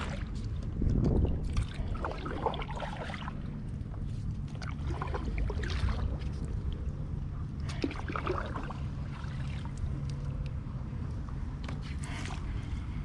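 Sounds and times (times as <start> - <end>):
paddle splashing water: 0.0 - 10.4
low rumble: 0.0 - 13.0.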